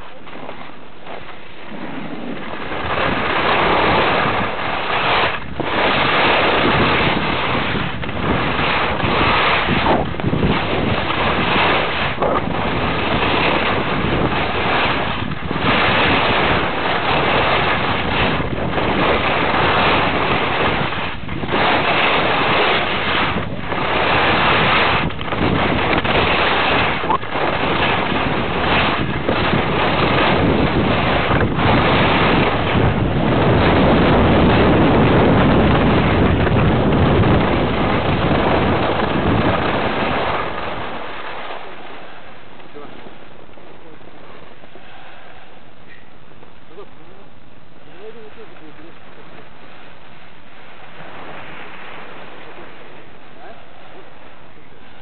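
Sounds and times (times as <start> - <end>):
skis scraping over packed snow: 0.0 - 45.5, 46.4 - 55.0
wind rushing over microphone: 0.0 - 55.0.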